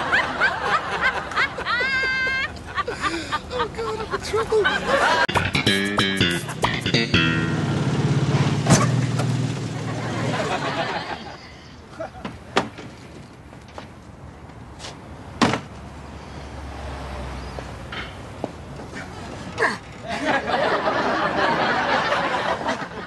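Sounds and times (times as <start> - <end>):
car engine running: 5.3 - 10.6.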